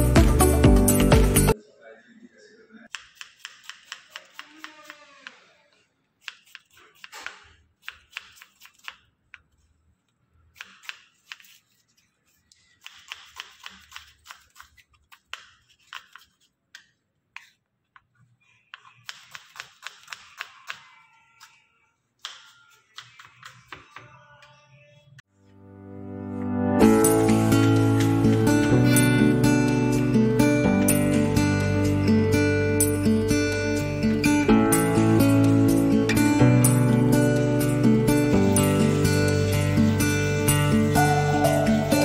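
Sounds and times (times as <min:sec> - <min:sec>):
knife chopping onion on wood: 0:02.9 - 0:05.0, 0:06.2 - 0:09.0, 0:10.6 - 0:11.6, 0:12.8 - 0:17.6, 0:18.7 - 0:20.9, 0:22.2 - 0:24.1.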